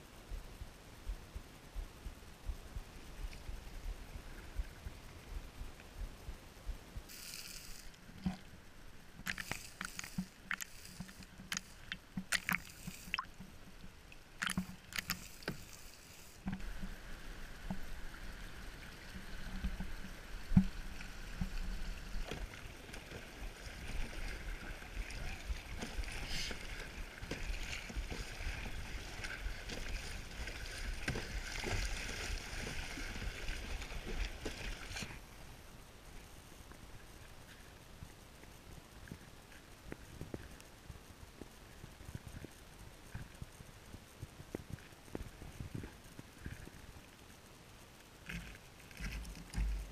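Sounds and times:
paddle strokes splashing: 0:07.1 - 0:35.4
water rushing around boat: 0:07.1 - 0:35.6.

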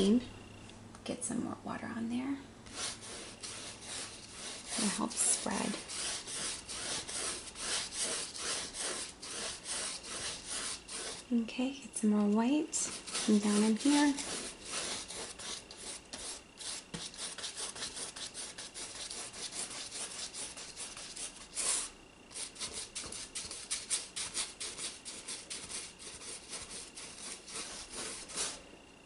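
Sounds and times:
paintbrush scrubbing canvas: 0:02.7 - 0:11.4, 0:12.8 - 0:28.6.

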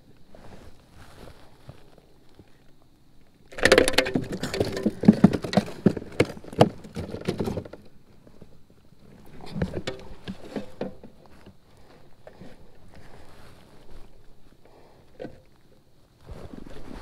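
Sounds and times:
fish thrashing on plastic board: 0:03.5 - 0:07.9.

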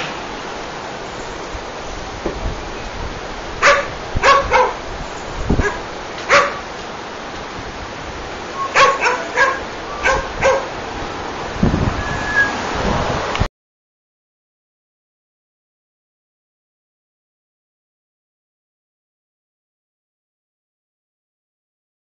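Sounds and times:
steady background hiss: 0:00.0 - 0:13.4
dog barking: 0:03.6 - 0:04.8, 0:05.6 - 0:06.7, 0:08.6 - 0:10.8.

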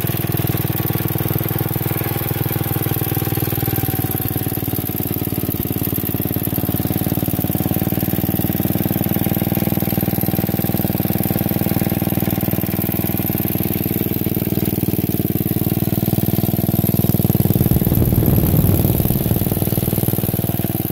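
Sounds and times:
small tractor engine idling: 0:00.0 - 0:20.9.

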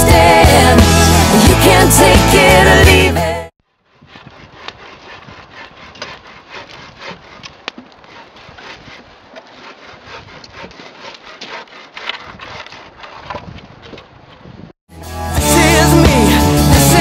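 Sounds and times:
bow saw rasping through log: 0:03.7 - 0:14.8.

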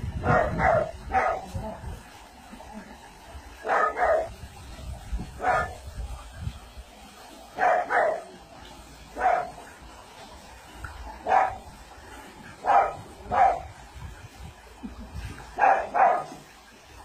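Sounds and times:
dog barking: 0:00.2 - 0:01.5, 0:03.6 - 0:04.3, 0:05.4 - 0:05.8, 0:07.6 - 0:08.3, 0:09.2 - 0:09.6, 0:11.2 - 0:11.6, 0:12.6 - 0:13.7, 0:15.6 - 0:16.4.

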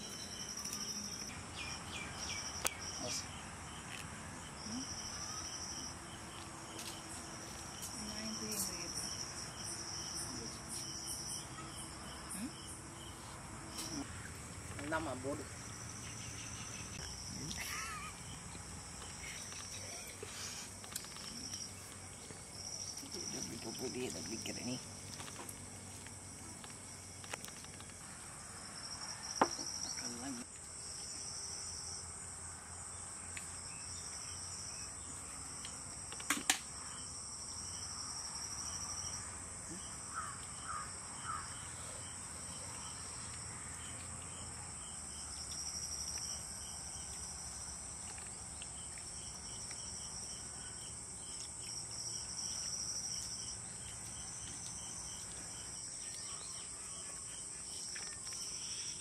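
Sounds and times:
insects buzzing: 0:00.0 - 0:59.0
insect pulsing trill: 0:14.9 - 0:24.9.

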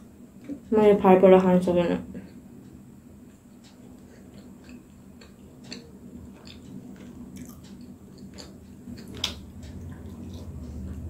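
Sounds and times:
wet mouth chewing clicks: 0:03.7 - 0:11.0.

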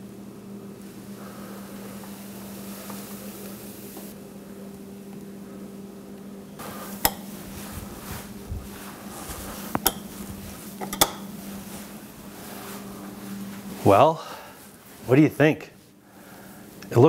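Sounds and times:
low hum: 0:00.0 - 0:15.0
sharp clicks and knocks: 0:10.8 - 0:11.3.

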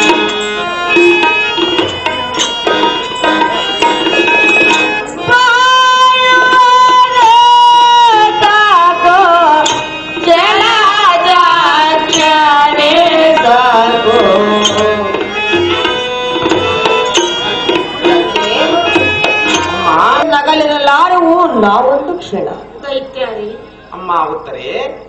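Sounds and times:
tabla beats: 0:00.0 - 0:22.3
person singing ornamented melody: 0:05.2 - 0:15.3.

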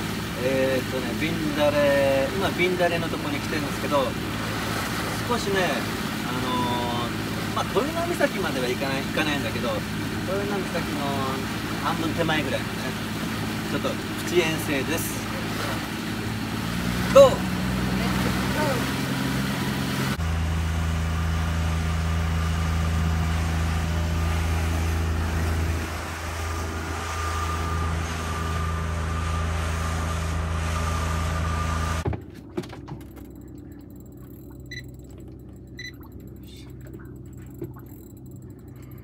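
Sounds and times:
wind and water rushing: 0:00.0 - 0:20.2, 0:22.9 - 0:32.0
boat engine running: 0:00.0 - 0:39.0
faint clicks and knocks: 0:32.0 - 0:39.0.

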